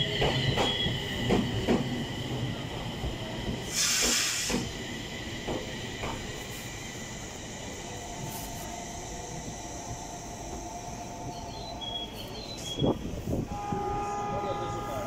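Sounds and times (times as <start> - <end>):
train knock: 0.0 - 2.4, 3.0 - 4.8, 5.4 - 6.4.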